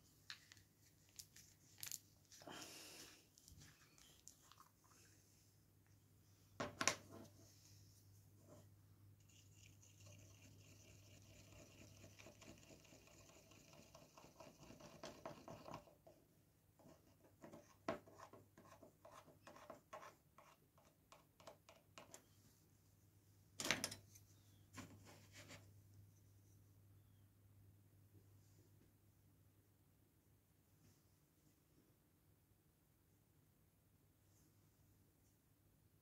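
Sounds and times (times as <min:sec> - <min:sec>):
faint steady hiss: 0:00.0 - 0:17.7
low room hum: 0:00.0 - 0:36.0
small ticks and scrapes: 0:08.4 - 0:16.2.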